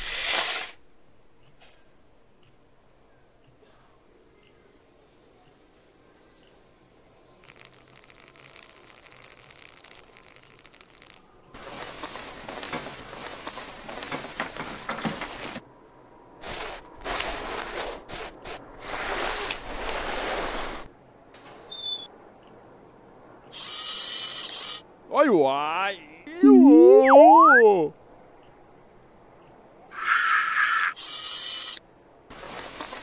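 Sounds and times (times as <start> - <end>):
clothes rustling noise bursts: 11.6 - 15.6, 16.4 - 20.9, 32.3 - 33.0.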